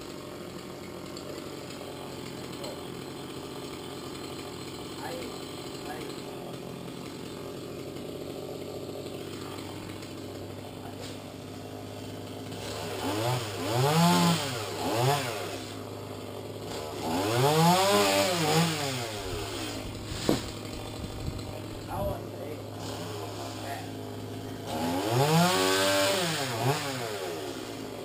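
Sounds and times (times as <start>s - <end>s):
chainsaw revving: 0.0s - 28.0s.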